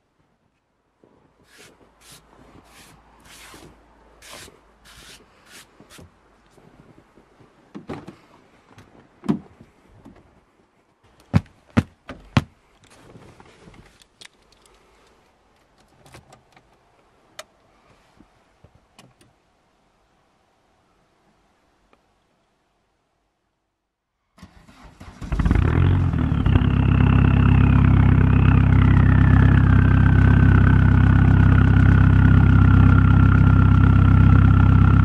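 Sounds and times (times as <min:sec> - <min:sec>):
hand sweeping snow off windscreen: 0:01.4 - 0:06.0.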